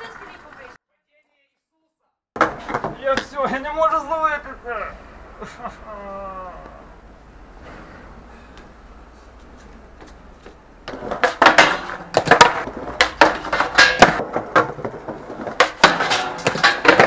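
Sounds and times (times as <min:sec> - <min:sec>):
skateboard wheels rolling on tiles: 0:00.0 - 0:00.8, 0:02.4 - 0:04.1, 0:08.6 - 0:17.0
skateboard clacking and knocking: 0:02.4 - 0:03.6, 0:10.0 - 0:17.0.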